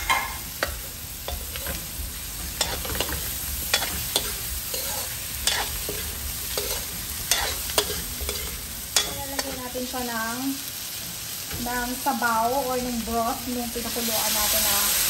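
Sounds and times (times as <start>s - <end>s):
metal spoon scraping pan: 0.0s - 1.8s, 2.6s - 9.6s
food sizzling in a wok: 0.0s - 15.0s.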